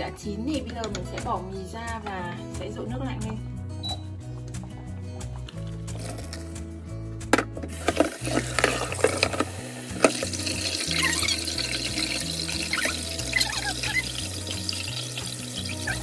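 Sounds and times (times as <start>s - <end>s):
tap water running into strainer: 7.6s - 16.0s.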